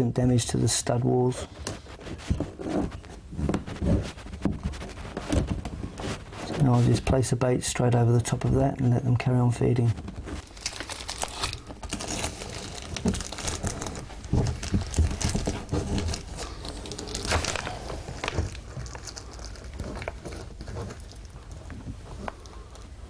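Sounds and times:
plastic packet rustling: 0:09.9 - 0:22.8.

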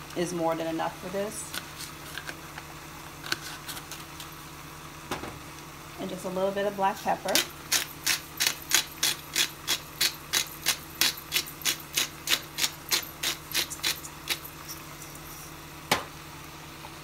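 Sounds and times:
pepper grinder clicking: 0:07.3 - 0:14.5.

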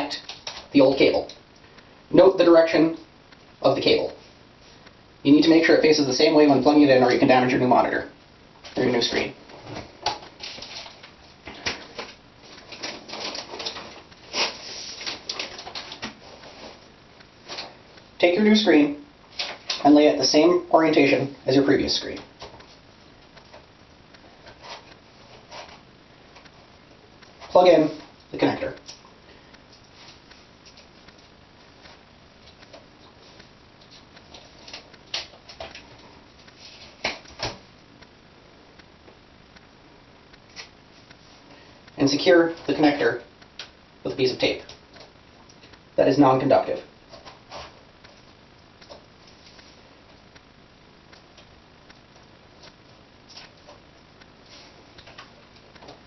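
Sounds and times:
plastic wrapping crinkling: 0:09.7 - 0:17.8.

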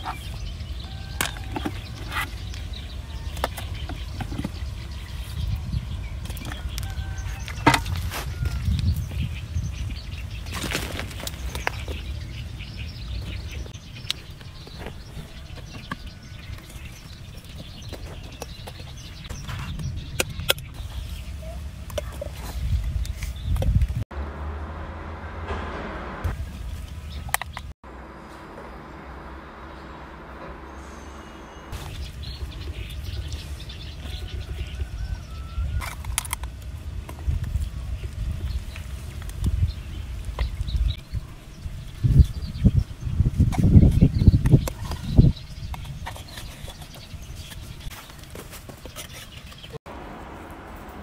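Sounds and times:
steady low rumble: 0:22.6 - 0:35.4.

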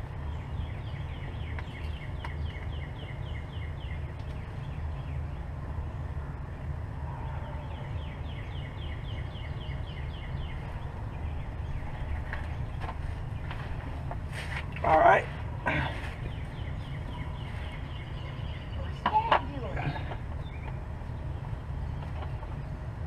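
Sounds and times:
bird chirping: 0:00.1 - 0:05.6, 0:06.4 - 0:22.9
low rumble: 0:03.0 - 0:23.0.

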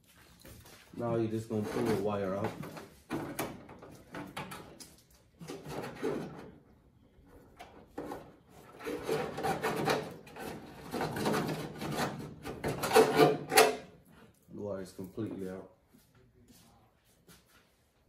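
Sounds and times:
wire scraping against car hood: 0:07.5 - 0:14.0.

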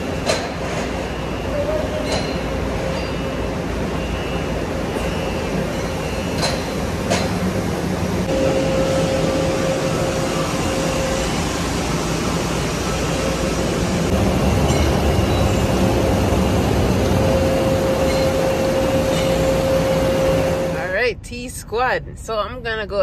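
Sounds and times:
factory machinery humming: 0:00.0 - 0:23.0.

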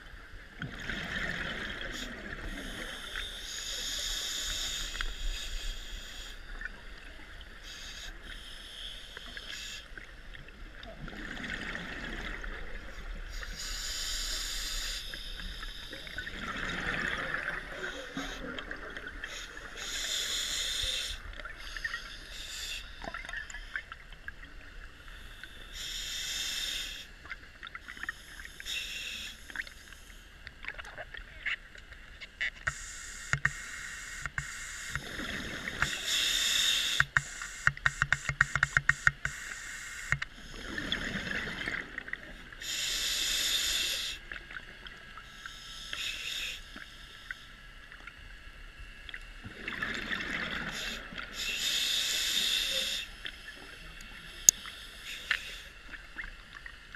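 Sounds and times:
diver breathing through regulator: 0:13.3 - 0:16.4, 0:17.2 - 0:23.1, 0:32.7 - 0:41.5, 0:42.6 - 0:44.3, 0:45.3 - 0:47.4, 0:50.4 - 0:55.8
faint clicks and crackles: 0:29.4 - 0:42.6, 0:44.2 - 0:56.9.

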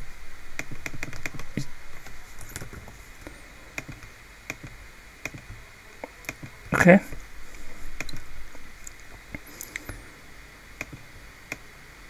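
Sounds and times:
keyboard typing clicks: 0:03.8 - 0:06.6.

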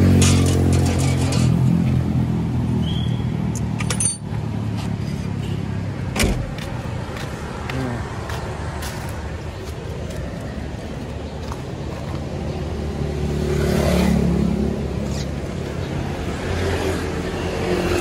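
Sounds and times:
low rumble of traffic: 0:00.0 - 0:18.0.

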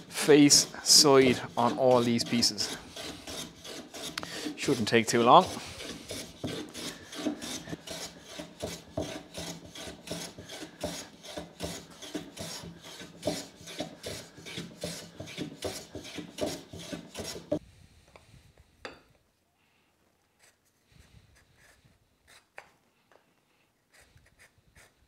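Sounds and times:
hand plane shaving wood: 0:00.0 - 0:17.6.

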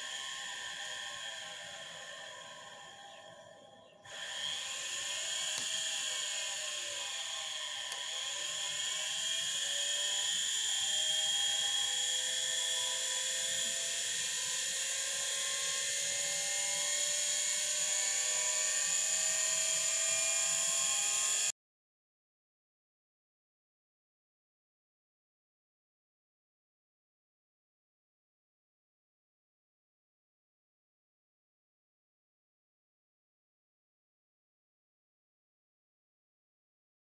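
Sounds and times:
electric motor whining: 0:00.0 - 0:21.5.

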